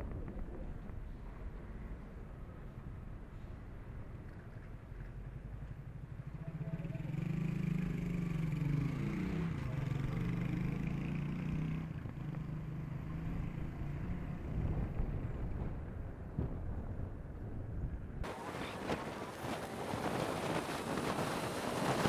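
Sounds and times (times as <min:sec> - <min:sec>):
low rumble of traffic: 0:00.0 - 0:22.0
vehicle engine passing: 0:06.9 - 0:15.2.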